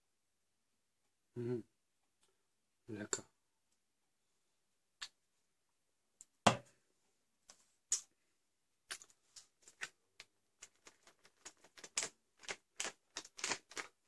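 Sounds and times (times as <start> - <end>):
foil pouch crinkling: 10.6 - 14.0.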